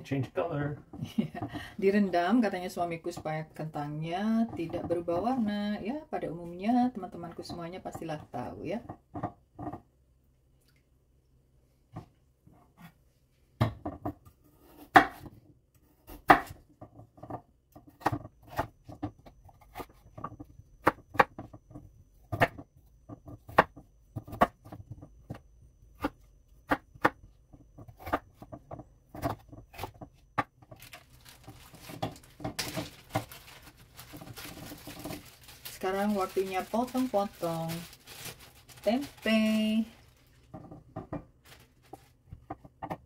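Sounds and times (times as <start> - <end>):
knife chopping potatoes on board: 13.6 - 15.4, 16.0 - 21.6, 22.2 - 25.4, 26.0 - 30.7
plastic bag crinkling: 30.8 - 40.5, 41.3 - 42.2.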